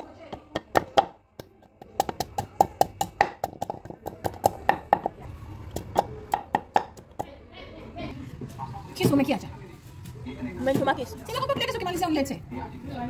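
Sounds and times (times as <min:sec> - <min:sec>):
pestle pounding in wooden mortar: 0:00.0 - 0:07.3.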